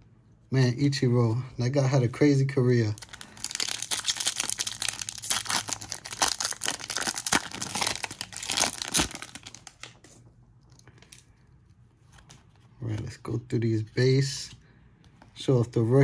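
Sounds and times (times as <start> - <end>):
plastic wrapper tearing and crinkling: 2.9 - 10.0.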